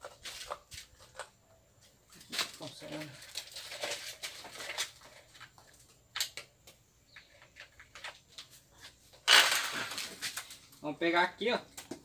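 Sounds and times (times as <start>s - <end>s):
cord rustling: 0.0s - 6.2s.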